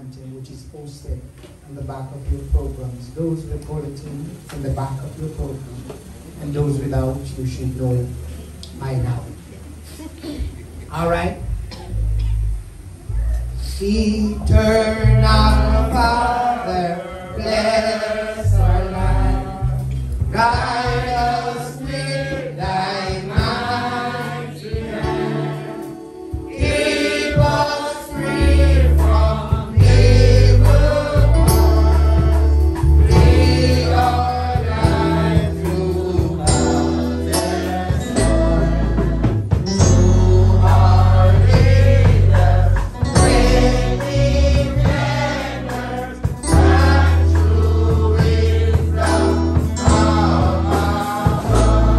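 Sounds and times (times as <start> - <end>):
steady bass notes: 0.0 - 51.9
group of voices singing: 14.4 - 51.9.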